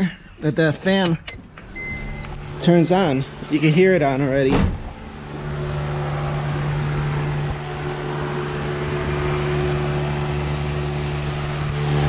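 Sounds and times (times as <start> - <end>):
radiator fan humming: 1.8 - 12.0.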